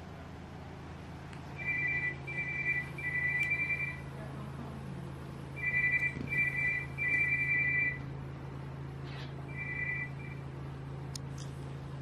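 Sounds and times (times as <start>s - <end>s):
steady low hum: 0.0s - 12.0s
electronic two-tone ringing: 1.6s - 4.0s, 5.6s - 8.0s, 9.5s - 10.4s.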